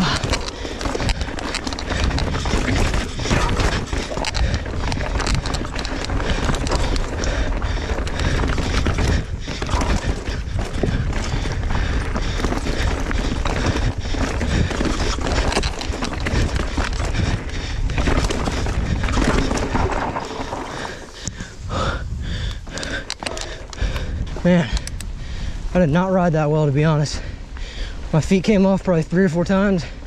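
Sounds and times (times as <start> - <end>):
bike clattering over rocks: 0.0 - 21.5
wind rushing on microphone: 0.0 - 29.2
bike tyre noise: 0.0 - 30.0.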